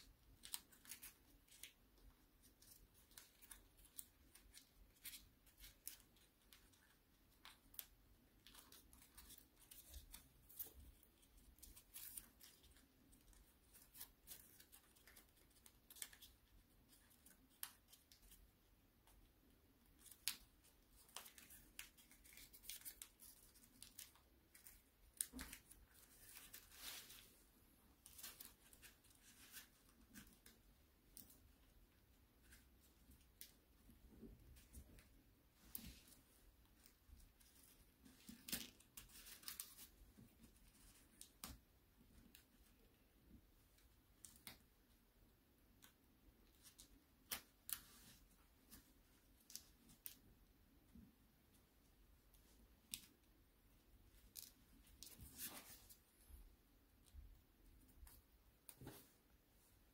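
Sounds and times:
paper folding and creasing: 0.0 - 18.5, 19.8 - 41.6
paper rustling: 19.8 - 31.7, 54.2 - 56.2.

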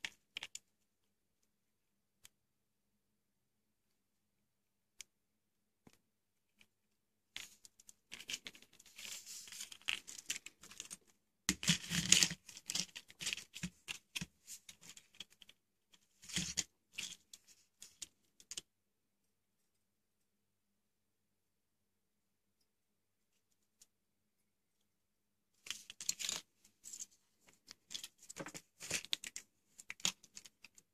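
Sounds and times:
hands rustling small parts: 7.3 - 18.7, 25.6 - 30.9.

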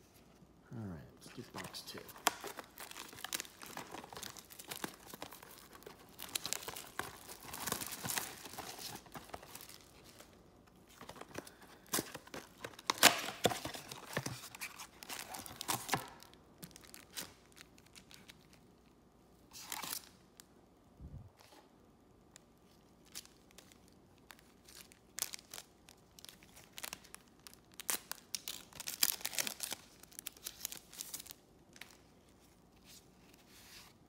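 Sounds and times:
packaging tearing and crinkling: 1.6 - 10.3, 10.9 - 18.6, 23.1 - 32.0.

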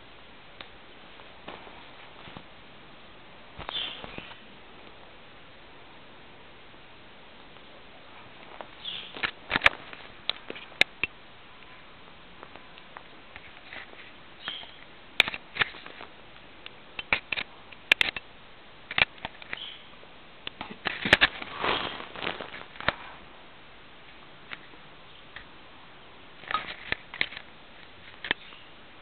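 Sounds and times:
rabbits rustling on bedspread: 1.1 - 2.6, 7.6 - 10.8, 20.9 - 23.4.

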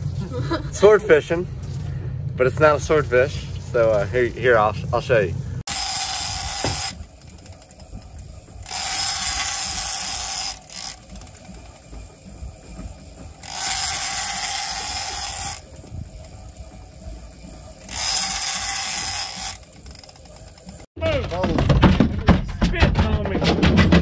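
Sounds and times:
fishing reel gears whirring: 5.7 - 20.9.

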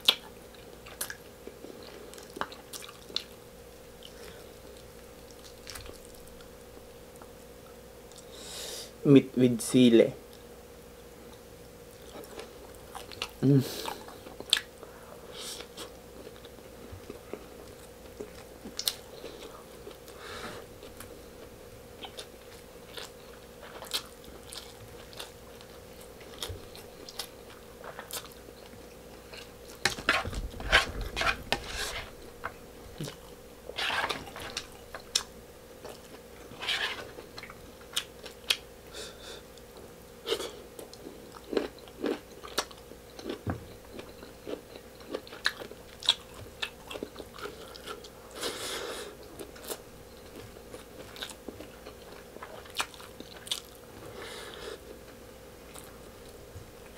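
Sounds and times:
mouth chewing and smacking: 0.0 - 3.4, 49.2 - 53.8
faint steady hum: 0.0 - 56.9.

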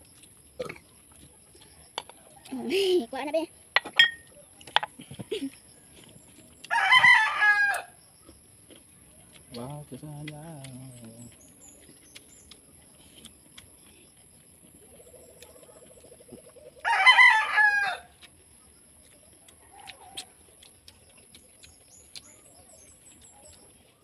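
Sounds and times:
rooster crowing: 6.6 - 8.0, 16.8 - 18.2.

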